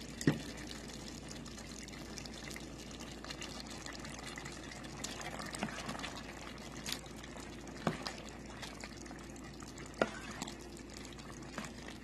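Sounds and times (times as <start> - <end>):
thick stew sloshing: 4.2 - 12.0.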